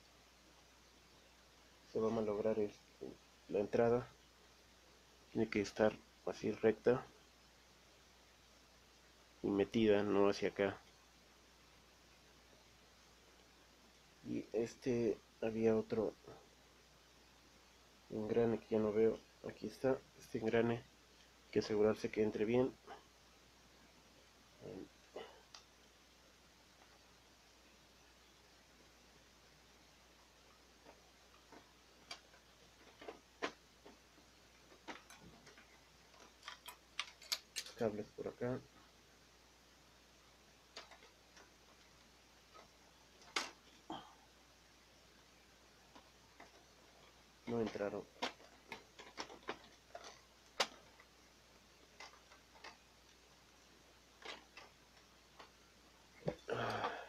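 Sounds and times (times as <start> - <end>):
plastic parts clicking: 30.8 - 37.8, 40.7 - 41.8, 42.5 - 43.8, 45.9 - 51.2, 51.8 - 53.2, 54.1 - 55.6.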